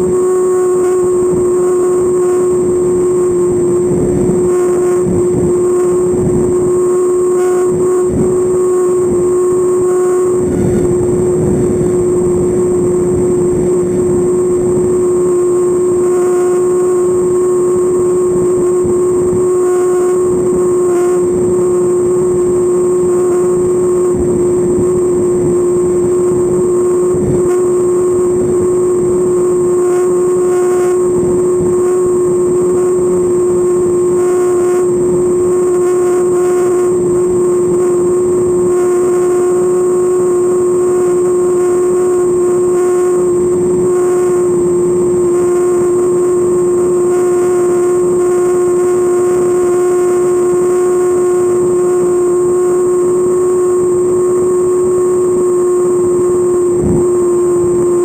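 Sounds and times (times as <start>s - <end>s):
model airplane engine drone: 0.0s - 58.0s
rushing air: 7.7s - 16.0s.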